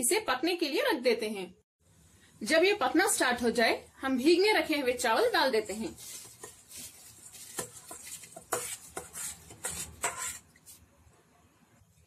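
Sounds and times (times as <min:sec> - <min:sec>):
rice scraping from bowl: 0:05.6 - 0:10.8.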